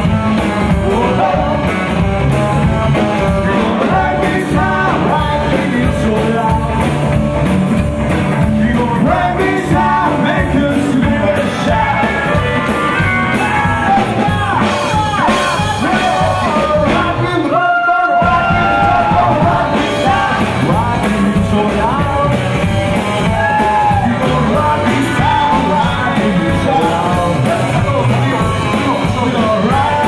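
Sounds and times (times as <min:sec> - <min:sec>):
man singing: 0:00.0 - 0:07.5, 0:08.1 - 0:30.0
rockabilly band playing: 0:00.0 - 0:30.0.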